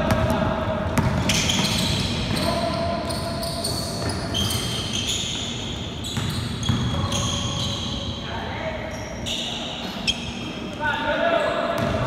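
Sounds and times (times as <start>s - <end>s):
basketball bouncing: 1.0s - 2.4s, 6.2s - 7.0s
sneakers squeaking on court: 1.0s - 8.2s, 8.8s - 10.8s, 11.4s - 12.0s.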